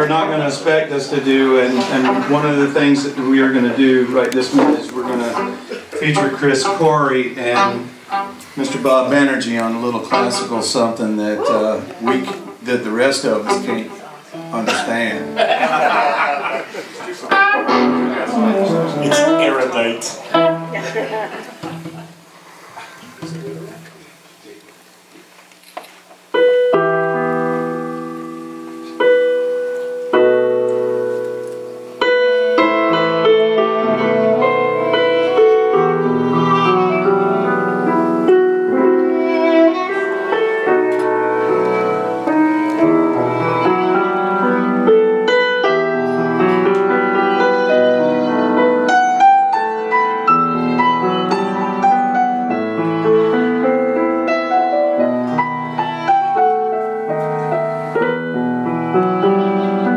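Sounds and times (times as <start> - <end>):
keyboard piano solo: 17.3 - 22.2, 26.3 - 59.9.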